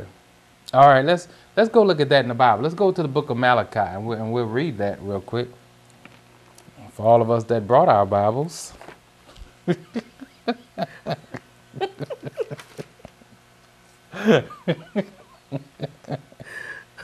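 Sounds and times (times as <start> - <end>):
man and woman laughing: 9.6 - 13.4, 14.2 - 16.8.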